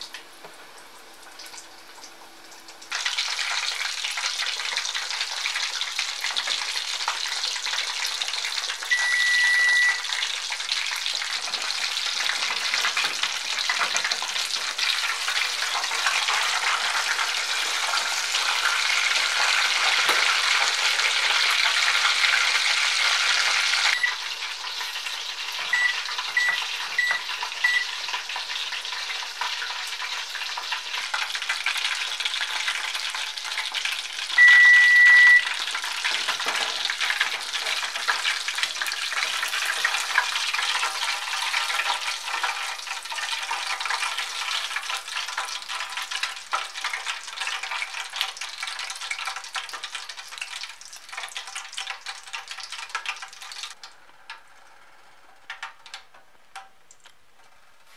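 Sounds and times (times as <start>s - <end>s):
deep-frying sizzle: 0.0s - 57.9s
long electronic beep: 8.9s - 10.0s, 34.4s - 35.5s
short electronic beeps: 8.9s - 10.0s, 25.7s - 27.9s, 34.4s - 35.5s.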